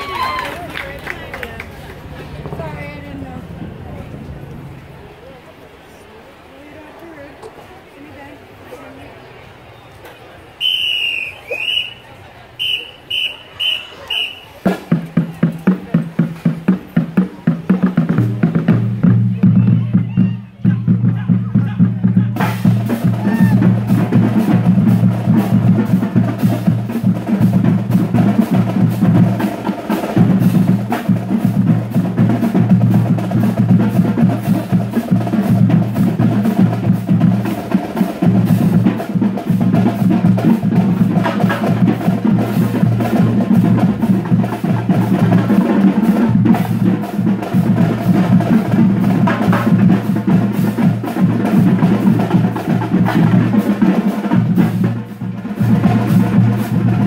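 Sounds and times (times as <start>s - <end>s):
drumline playing snare and bass drums: 12.6s - 57.0s.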